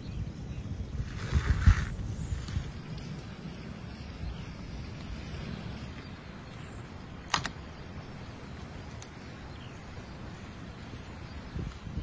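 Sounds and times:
wind rumble on microphone: 0.0 - 12.0.

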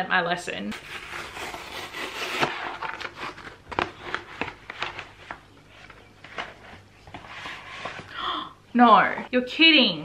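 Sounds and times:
cardboard envelope tearing: 0.7 - 5.4
paper crackles and taps: 2.7 - 8.1.

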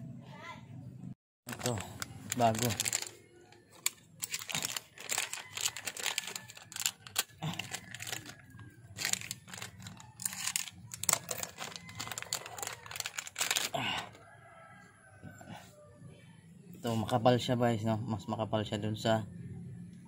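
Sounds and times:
plastic packaging crinkling: 1.5 - 13.8.

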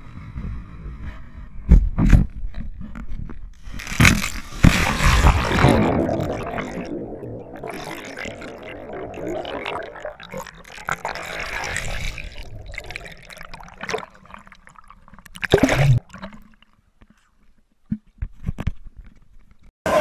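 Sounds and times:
underwater gurgling and bubbling: 3.7 - 16.6
loud water splash: 3.8 - 14.1.

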